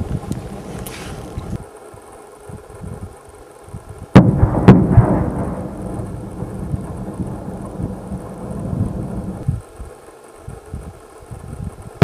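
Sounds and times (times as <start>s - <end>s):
low rolling rumble: 0.0s - 12.0s
explosion blast: 4.1s - 9.4s.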